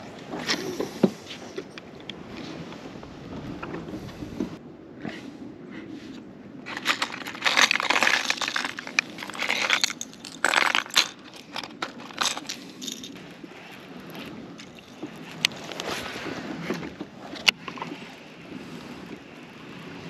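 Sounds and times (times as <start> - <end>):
fishing lures rattling in tray: 6.7 - 13.2, 14.6 - 15.4.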